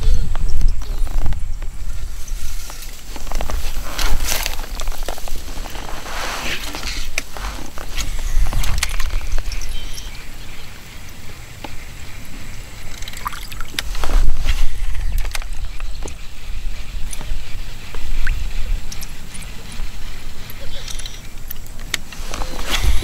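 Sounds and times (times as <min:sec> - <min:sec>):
water trickling: 0:12.8 - 0:14.1.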